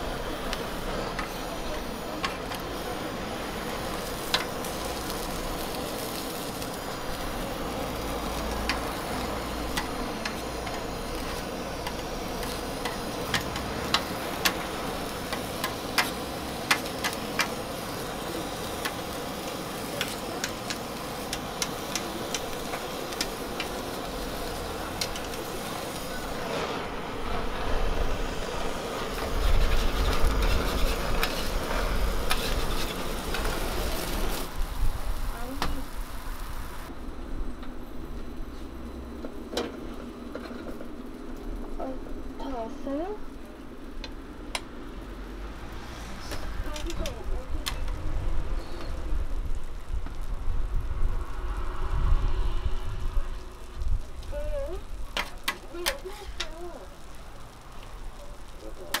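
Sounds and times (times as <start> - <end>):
blowtorch flame hissing: 0.0 - 59.0
food sizzling on griddle: 0.0 - 59.0
metal spatula clicking on griddle: 8.4 - 8.9, 9.7 - 17.6, 20.0 - 23.8.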